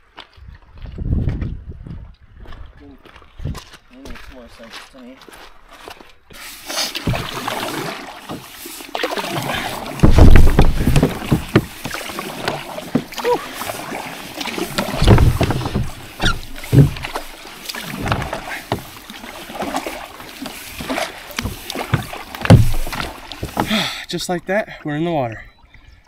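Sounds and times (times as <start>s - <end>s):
paddle splashing in water: 6.4s - 24.0s
dull low thumps: 10.0s - 12.0s, 14.8s - 17.4s, 21.4s - 23.7s.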